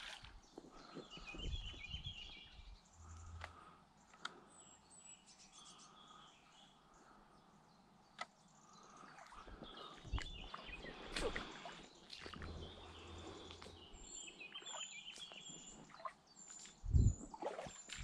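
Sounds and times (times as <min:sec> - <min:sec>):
birds singing: 0:00.0 - 0:18.0.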